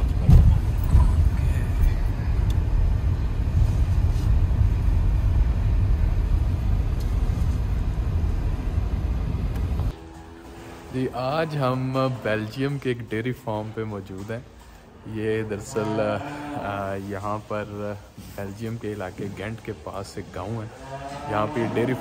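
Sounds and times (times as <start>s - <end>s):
car bumps: 0.0s - 1.2s
car engine and tyres rumbling: 0.0s - 11.4s.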